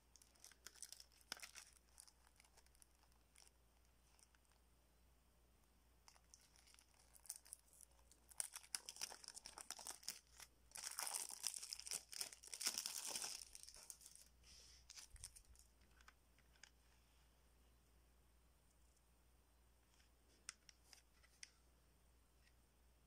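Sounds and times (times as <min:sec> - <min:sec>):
plastic wrap crinkling and crackling: 0:00.0 - 0:04.6, 0:06.0 - 0:16.8.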